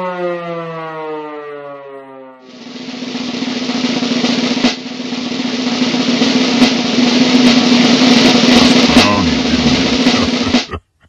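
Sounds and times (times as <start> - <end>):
snare drum roll: 2.5 - 10.8.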